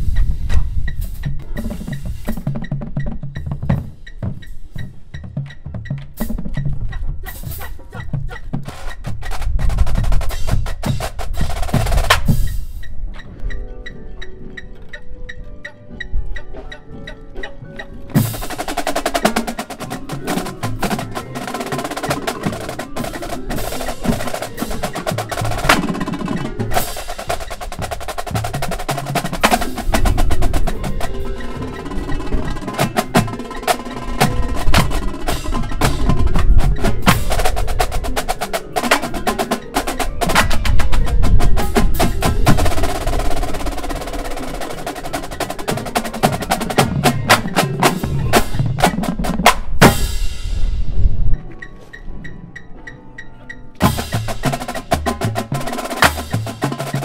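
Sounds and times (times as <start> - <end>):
bass drums: 0.0 - 12.7, 53.8 - 57.0
snare drums: 0.0 - 12.9, 18.1 - 50.7, 53.8 - 57.0
tenor drums: 0.0 - 14.0, 15.4 - 51.8, 53.7 - 57.0.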